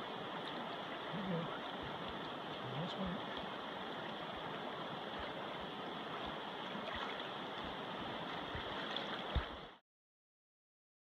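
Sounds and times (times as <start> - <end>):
river water rushing: 0.0 - 9.8.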